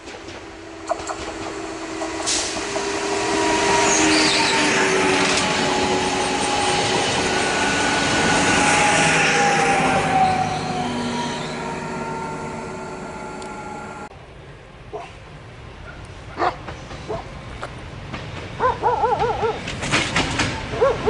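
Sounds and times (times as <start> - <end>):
diesel locomotive rumble: 0.0 - 21.0
electric train motor whine: 0.8 - 14.1
dog yelping: 18.6 - 19.6, 20.7 - 21.0.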